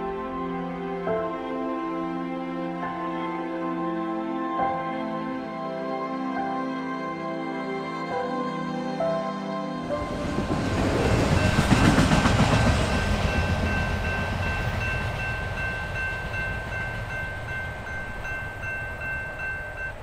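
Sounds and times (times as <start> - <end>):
train rumble and wheel clatter: 9.8 - 20.0
crossing warning bell ringing: 11.0 - 20.0.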